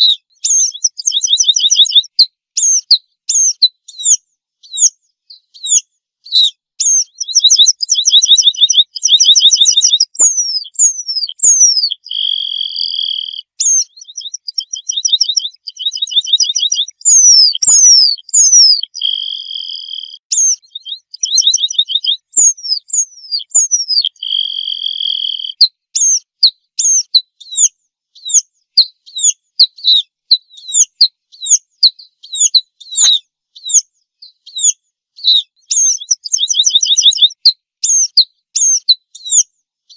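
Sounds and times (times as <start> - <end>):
pipit singing: 0.0 - 27.2, 34.5 - 39.4.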